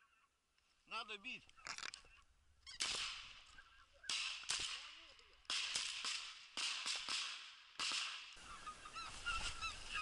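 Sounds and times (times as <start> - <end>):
shotgun shots: 2.8 - 3.5, 4.1 - 8.4.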